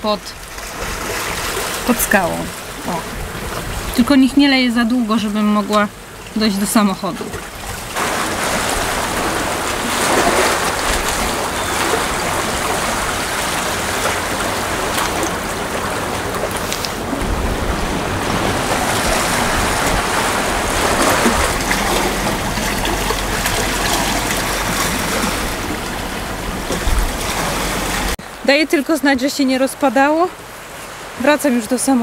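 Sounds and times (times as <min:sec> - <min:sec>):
waves washing against rocks: 0:00.0 - 0:04.7, 0:07.2 - 0:28.4
wind buffeting microphone: 0:07.4 - 0:28.2.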